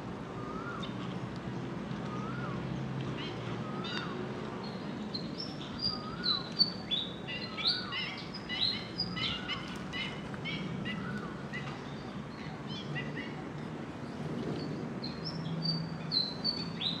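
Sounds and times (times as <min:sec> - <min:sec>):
small birds chirping: 0:03.0 - 0:17.0.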